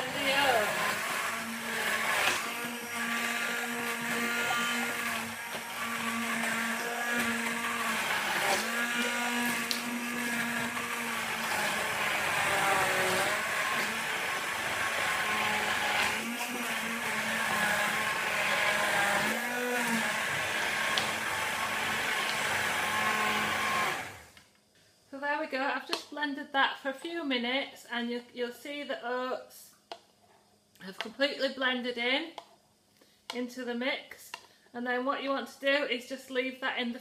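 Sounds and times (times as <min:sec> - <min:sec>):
stick blender running: 0:00.0 - 0:24.4.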